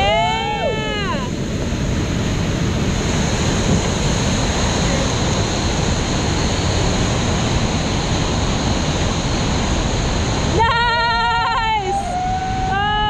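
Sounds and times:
whitewater rapids rushing: 0:00.0 - 0:13.0.

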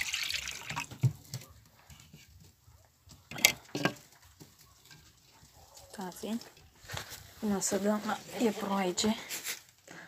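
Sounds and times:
rustling: 0:01.4 - 0:10.0.

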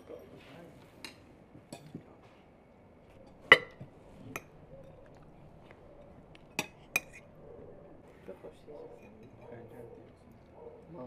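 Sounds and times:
cutlery clinking on plates: 0:03.1 - 0:07.3, 0:08.7 - 0:10.0.

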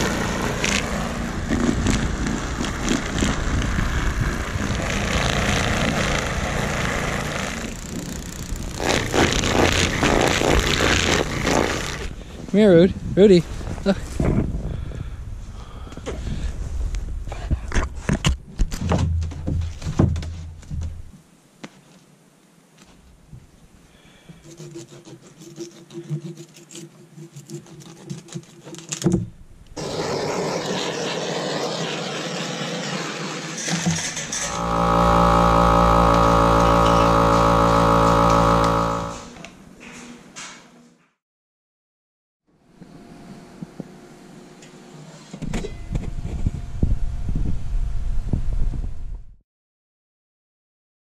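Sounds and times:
rumbling and knocks of handling: 0:17.6 - 0:21.2
faint steady hum: 0:34.5 - 0:39.4.

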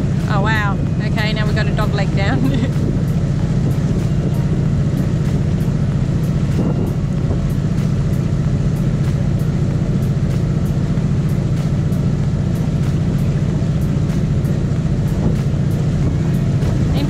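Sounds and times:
boat engine droning: 0:00.0 - 0:17.0.

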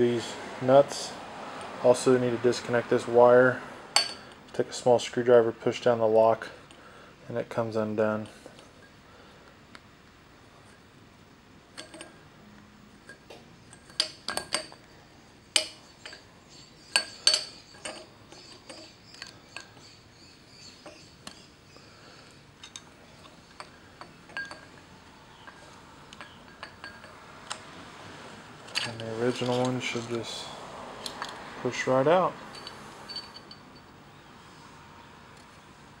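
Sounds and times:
metal parts clicking and clinking: 0:11.7 - 0:12.2, 0:13.0 - 0:14.9, 0:15.5 - 0:16.3, 0:16.9 - 0:19.9, 0:20.8 - 0:21.5, 0:22.2 - 0:27.7, 0:28.6 - 0:31.4, 0:32.4 - 0:34.0.

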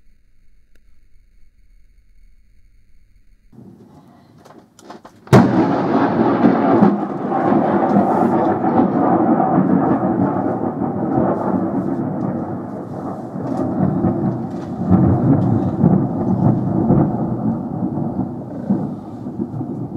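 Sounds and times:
thunder crack and rumble: 0:03.6 - 0:04.5, 0:05.2 - 0:19.9.

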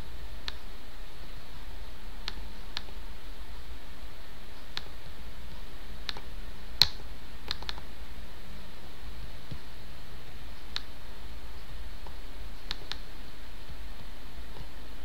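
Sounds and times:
steady low hum: 0:00.0 - 0:15.0
computer mouse clicks: 0:00.4 - 0:00.7, 0:02.2 - 0:03.0, 0:04.6 - 0:07.9, 0:10.6 - 0:11.0, 0:12.0 - 0:13.8.

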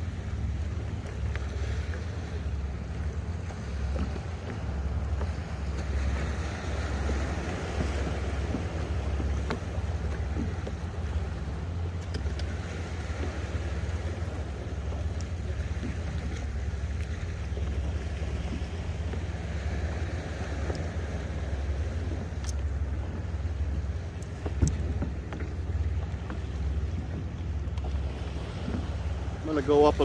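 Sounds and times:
water sloshing against kayak: 0:00.0 - 0:30.0
wind rumbling on microphone: 0:00.0 - 0:30.0
faint clicks: 0:11.9 - 0:12.6, 0:22.2 - 0:22.7, 0:24.1 - 0:26.4.

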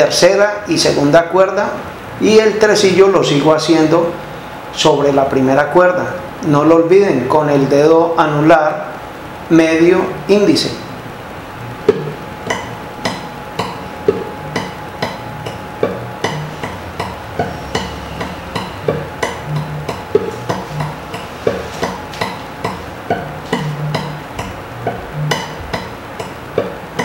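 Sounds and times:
guitar picked notes: 0:11.0 - 0:27.0.

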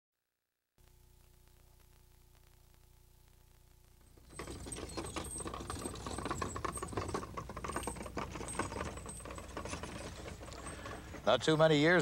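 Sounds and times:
faint hum: 0:00.4 - 0:05.0
horse hooves clattering: 0:04.2 - 0:12.0
wooden wagon rattling: 0:04.2 - 0:12.0.

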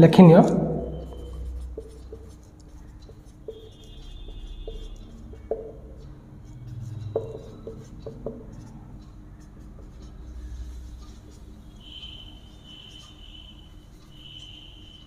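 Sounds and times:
marker pen writing on whiteboard: 0:00.2 - 0:15.0.

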